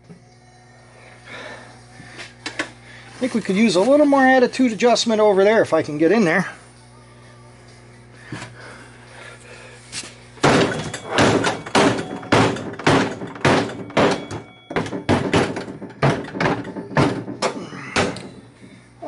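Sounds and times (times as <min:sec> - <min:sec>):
steel bar pounding sheet metal: 0:10.4 - 0:18.3.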